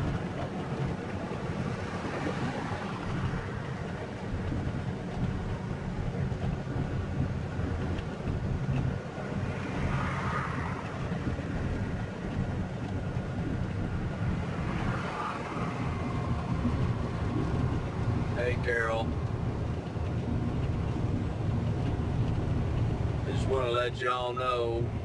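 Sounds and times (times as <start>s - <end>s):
truck engine and road rumble: 0.0s - 25.0s.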